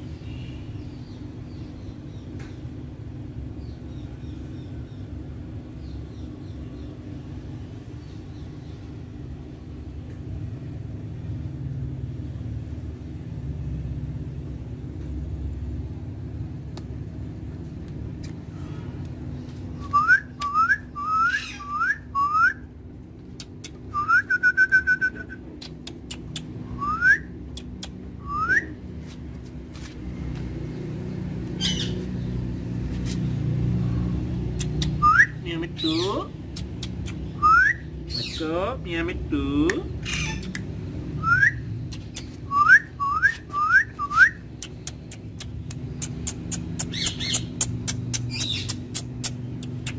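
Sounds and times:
steady low hum: 0.0s - 49.9s
short upward-sliding whistles: 42.5s - 44.4s.

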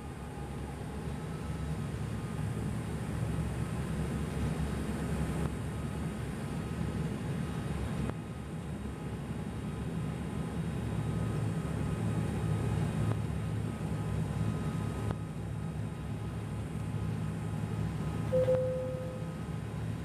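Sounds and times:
turboprop engine drone in cabin: 0.0s - 20.0s
short steady tone: 18.3s - 19.4s.

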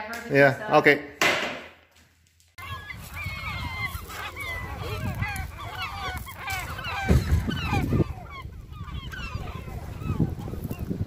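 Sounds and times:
gulls calling: 2.6s - 11.0s
wind buffeting microphone: 2.6s - 11.0s.

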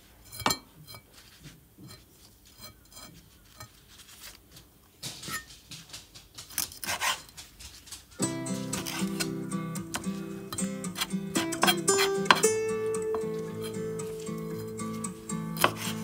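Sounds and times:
knife cutting fish on board: 8.8s - 9.3s, 15.6s - 16.0s.

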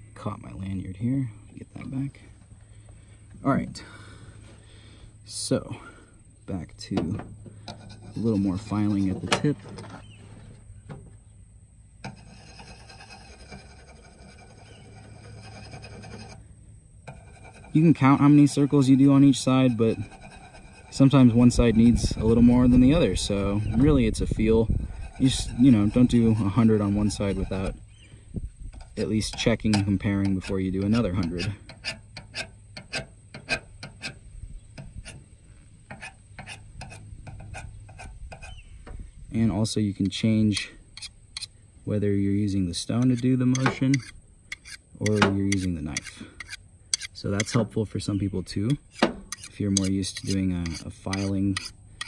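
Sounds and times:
knife scraping on whetstone: 7.7s - 9.3s, 12.0s - 16.4s, 17.1s - 27.8s, 28.8s - 34.2s, 35.9s - 38.6s, 40.5s - 41.6s, 43.0s - 47.7s, 48.7s - 52.0s.

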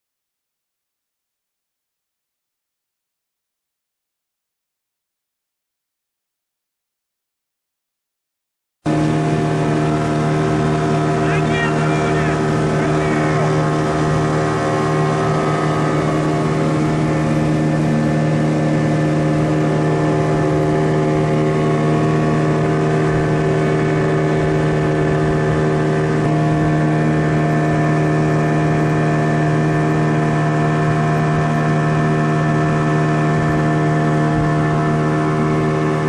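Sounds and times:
outboard motor running: 8.9s - 36.0s.

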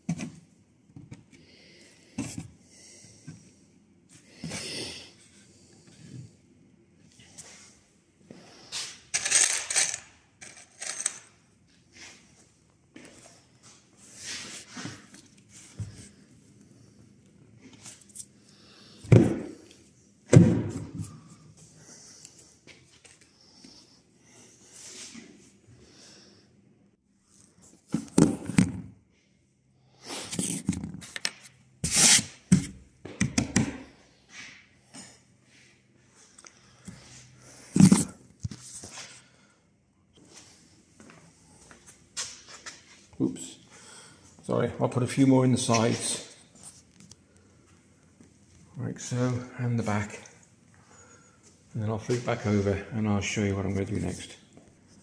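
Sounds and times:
metal screws clinking: 9.1s - 11.3s.

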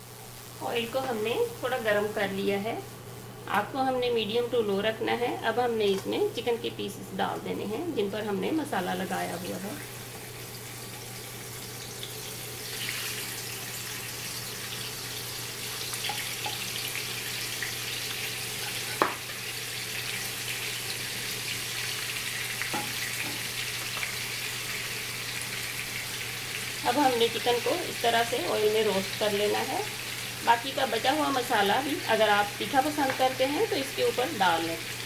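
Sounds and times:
chicken sizzling in oil: 8.2s - 35.0s.

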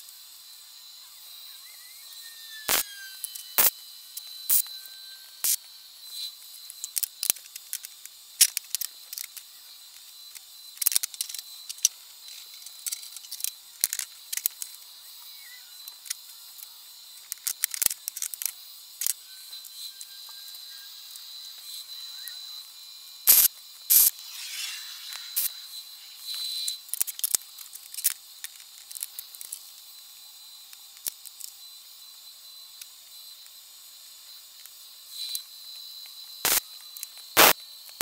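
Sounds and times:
tack welding bursts: 2.7s - 3.7s, 23.3s - 25.6s, 36.4s - 36.6s, 37.4s - 37.6s
steel parts clicking on table: 23.3s - 24.1s.

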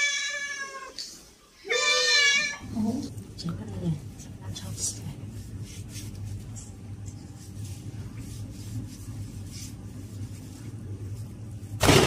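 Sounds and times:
steady low hum: 2.6s - 12.0s
hands rustling and scraping meat: 5.2s - 11.8s.

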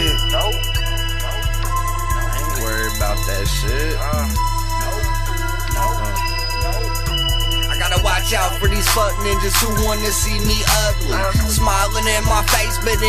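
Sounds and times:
melodic lines: 0.0s - 12.8s
deep bass line: 0.0s - 13.0s
steady drum beat: 0.0s - 13.0s.

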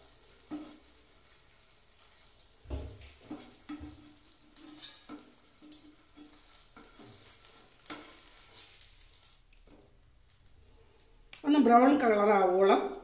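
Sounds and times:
ghee sizzling faintly: 0.0s - 13.0s
metal utensils scraping frying pan: 3.2s - 9.2s.

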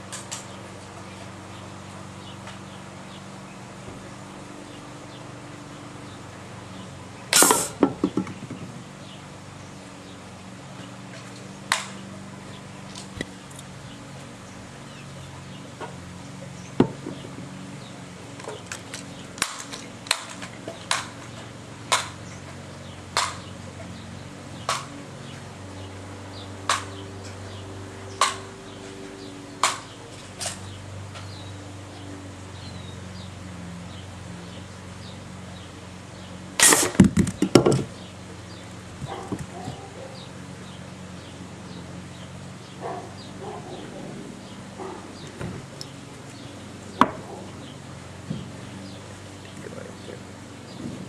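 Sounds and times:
gunshots: 7.4s - 7.8s, 36.6s - 37.1s
can bursting: 7.4s - 8.0s, 36.6s - 37.7s.

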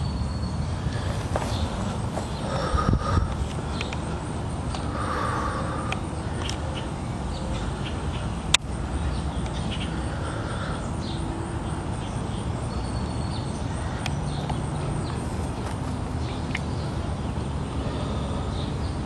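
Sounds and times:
low outdoor rumble: 0.1s - 12.2s
faint bird calls: 0.6s - 12.1s.

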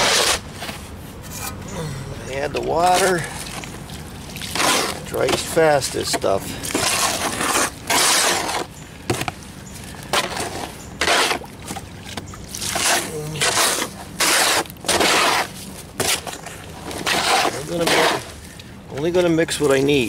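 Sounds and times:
trowel scraping mortar tub: 0.0s - 1.6s, 2.2s - 3.7s, 4.4s - 9.3s, 9.9s - 11.5s, 12.6s - 18.4s.

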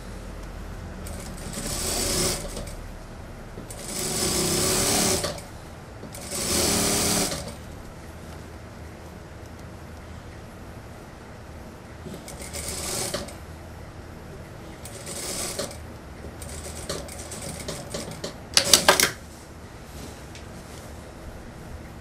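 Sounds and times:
low steady hum: 0.0s - 22.0s
sewing machine stitching: 1.0s - 2.8s, 3.7s - 5.5s, 6.1s - 7.6s, 12.1s - 13.4s, 14.8s - 15.8s, 16.4s - 19.1s.

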